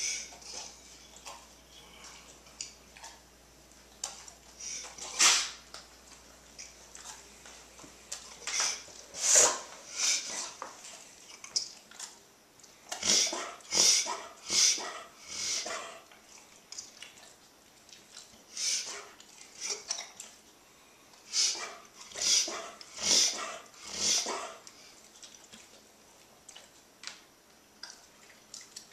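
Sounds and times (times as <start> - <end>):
dog reverse sneezing: 4.6 - 5.6, 8.4 - 10.6, 12.9 - 16.0, 21.3 - 24.6.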